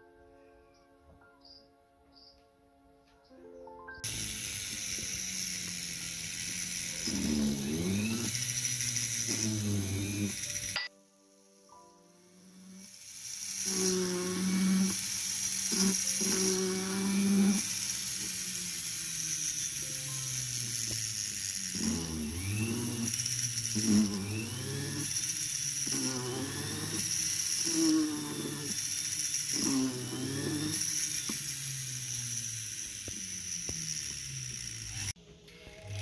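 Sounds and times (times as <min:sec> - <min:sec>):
melodic background music: 0:00.0 - 0:04.1
rotary tool high whine: 0:04.0 - 0:36.0.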